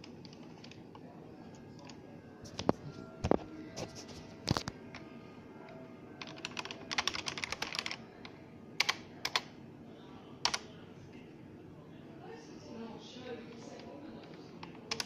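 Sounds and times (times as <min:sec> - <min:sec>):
calculator keys clicking: 0:06.2 - 0:08.0, 0:14.6 - 0:15.0.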